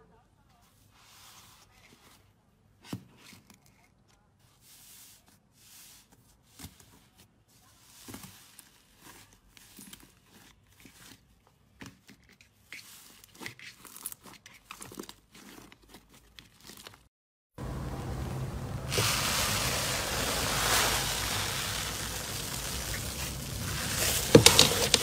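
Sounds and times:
loud steady hiss: 0:17.6 - 0:25.0.

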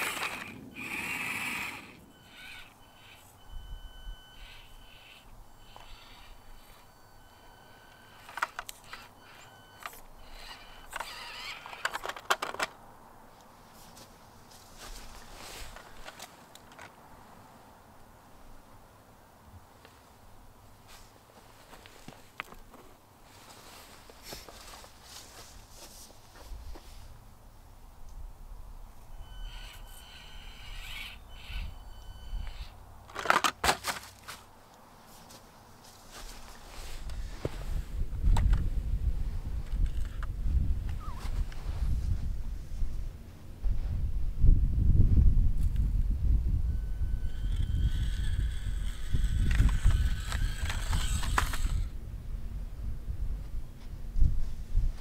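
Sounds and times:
toy truck clattering off rock: 0:00.0 - 0:03.1, 0:08.0 - 0:12.8, 0:29.4 - 0:31.8, 0:32.4 - 0:34.4, 0:47.0 - 0:51.9
small electric motor whining: 0:00.0 - 0:12.6, 0:29.1 - 0:32.8, 0:46.5 - 0:51.9
faint high motor whine: 0:00.0 - 0:43.7, 0:44.3 - 0:54.2
small plastic clicks: 0:08.2 - 0:12.8, 0:47.3 - 0:51.9
tyres scrabbling on rock: 0:47.3 - 0:51.9.

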